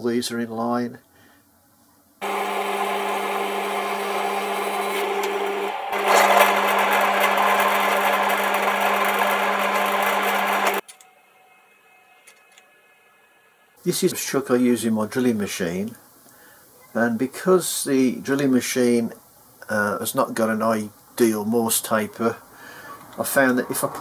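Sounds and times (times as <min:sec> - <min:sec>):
drilling machine cutting metal: 0:02.2 - 0:10.8.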